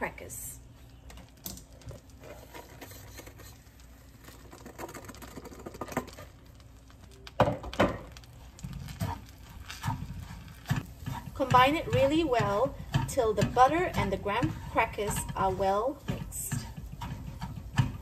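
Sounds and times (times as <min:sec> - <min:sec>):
wooden spatula knocking a pan: 0:09.8 - 0:18.0.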